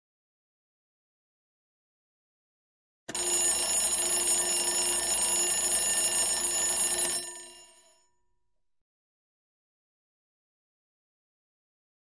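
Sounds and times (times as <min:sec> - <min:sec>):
timer alarm ringing: 0:03.1 - 0:08.1.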